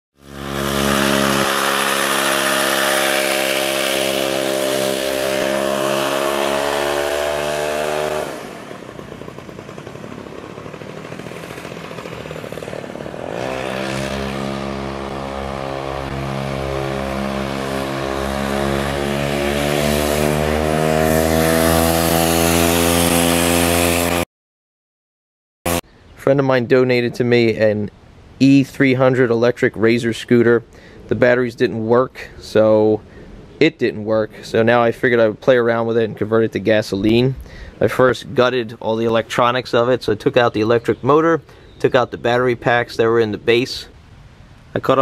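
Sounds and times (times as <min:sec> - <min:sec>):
chainsaw engine droning: 0:00.2 - 0:24.2, 0:25.7 - 0:25.9.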